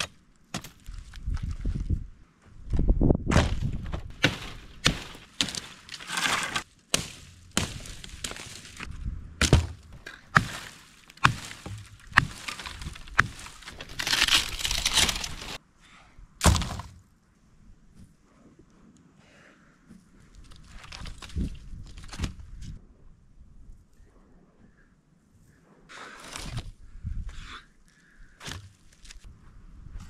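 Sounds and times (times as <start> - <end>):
axe chopping wood: 3.3 - 15.6, 16.4 - 17.0
dry branches cracking: 3.3 - 15.6.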